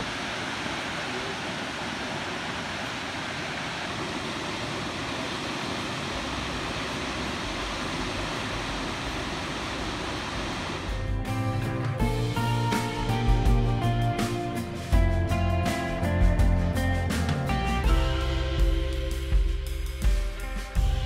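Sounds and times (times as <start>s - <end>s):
distant waterfall rushing: 0.0s - 21.0s
guitar music: 10.9s - 21.0s.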